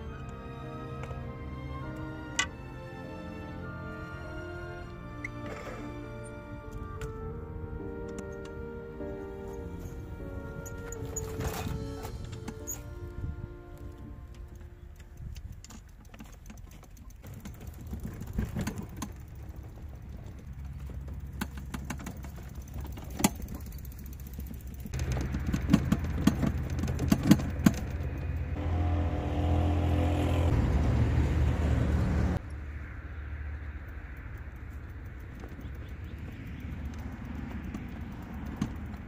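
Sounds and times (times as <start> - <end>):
bike and trailer rattling: 0.0 - 39.0
loud steady rumble: 17.3 - 39.0.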